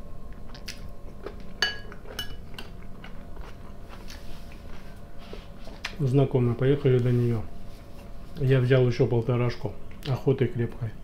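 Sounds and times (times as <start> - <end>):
man chewing: 0.2 - 6.0
fork clinking on glass bowl: 1.6 - 2.7.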